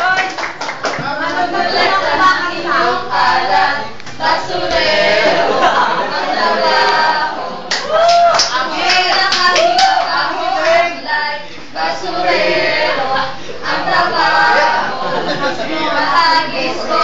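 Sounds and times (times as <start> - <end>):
group singing unaccompanied: 0.9 - 17.0
sharp claps: 7.7 - 10.1.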